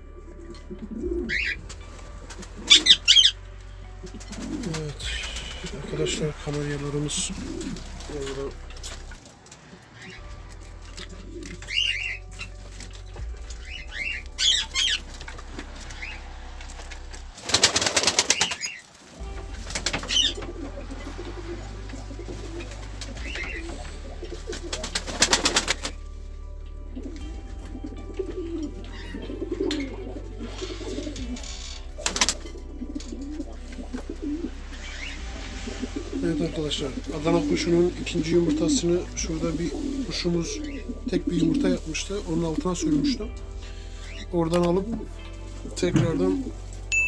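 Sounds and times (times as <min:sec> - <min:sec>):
pigeons cooing: 0:00.0 - 0:03.4, 0:04.0 - 0:26.0, 0:27.0 - 0:46.7
canaries chirping: 0:00.5 - 0:16.3, 0:17.6 - 0:25.7, 0:28.4 - 0:44.8
wings flapping: 0:04.0 - 0:10.2, 0:10.9 - 0:26.0, 0:32.0 - 0:32.5.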